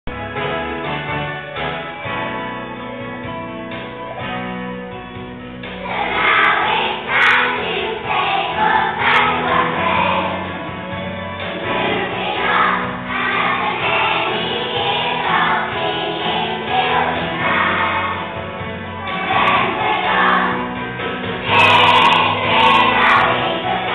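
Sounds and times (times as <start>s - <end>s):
musical accompaniment: 0.1s - 23.9s
children singing in unison: 5.8s - 10.6s, 11.5s - 18.4s, 19.0s - 20.8s, 21.4s - 23.9s.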